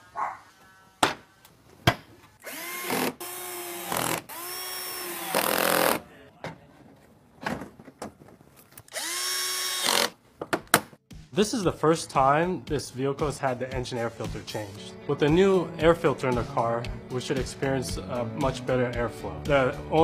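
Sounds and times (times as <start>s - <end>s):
cordless drill driving bolts: 2.4s - 6.0s, 8.9s - 10.2s.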